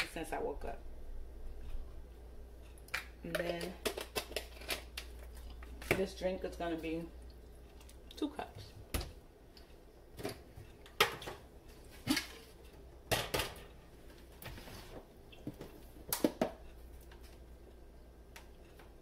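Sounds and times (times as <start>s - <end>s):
dishes knocking and clattering: 10.2s - 11.5s, 13.1s - 13.7s.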